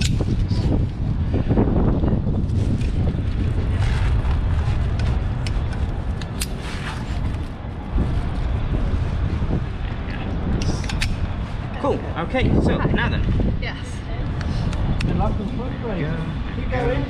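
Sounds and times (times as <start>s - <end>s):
wind buffeting microphone: 0.0s - 17.0s
sharp clicks: 10.6s - 11.2s.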